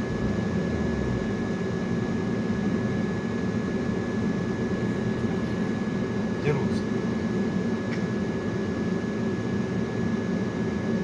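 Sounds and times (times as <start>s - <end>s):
car engine and tyre rumble: 0.0s - 6.2s.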